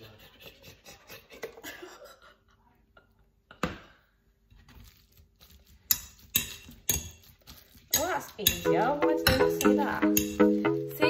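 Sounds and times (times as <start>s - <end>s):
beans being mashed: 4.5s - 11.0s
utensil knocking on bowl: 7.9s - 10.7s.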